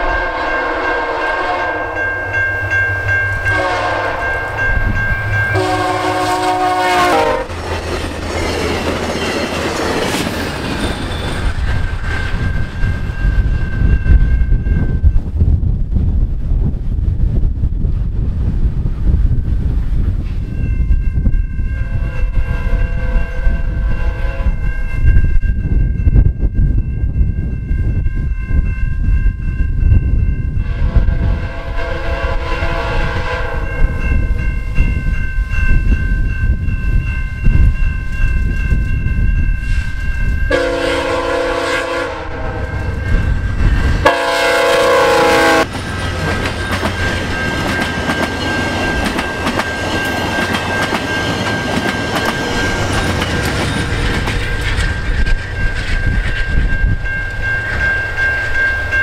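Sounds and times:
train horn blasts: 0.0s - 2.2s, 3.4s - 4.7s, 5.5s - 7.6s, 21.8s - 24.8s, 30.6s - 34.0s, 40.5s - 43.1s, 44.0s - 45.7s
train rumble: 0.0s - 59.0s.

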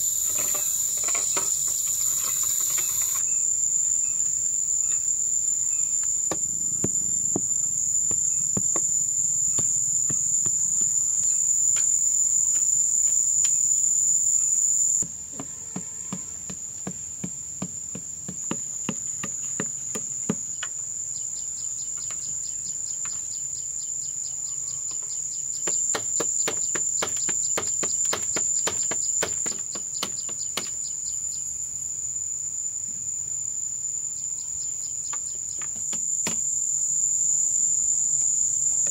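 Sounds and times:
high-pitched insect drone: 0.0s - 15.0s, 34.3s - 38.9s.

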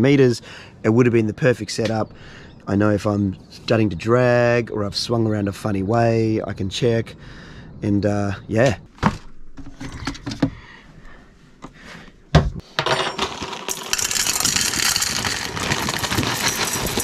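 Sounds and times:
muesli rattling into metal bowl: 13.0s - 17.0s.

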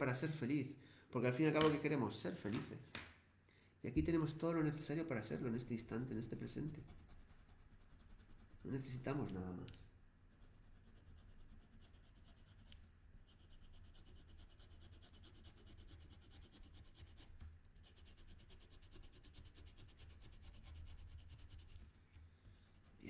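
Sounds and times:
low steady hum: 3.5s - 23.0s
felt-tip marker scribbling on paper: 6.4s - 9.1s, 10.3s - 21.8s.

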